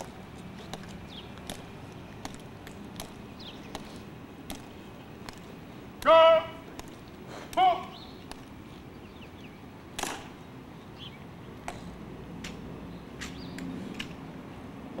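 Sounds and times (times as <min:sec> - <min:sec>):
marching shoes clicking on stone: 0:00.0 - 0:08.8.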